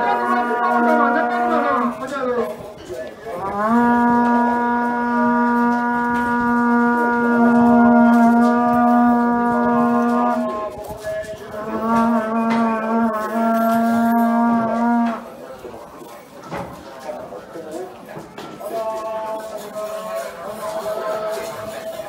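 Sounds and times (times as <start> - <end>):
conch shell trumpet notes: 0.0 - 2.1, 3.4 - 15.3.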